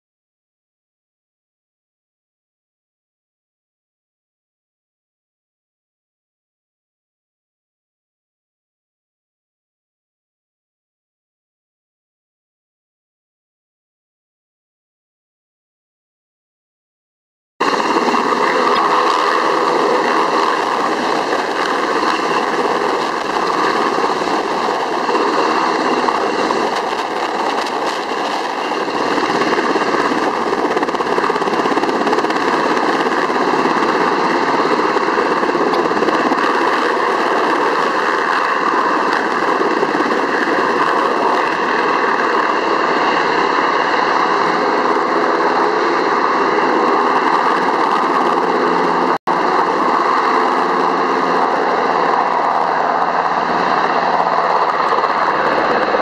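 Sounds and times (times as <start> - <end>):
helicopter rotor and turbine: 17.6 - 56.0.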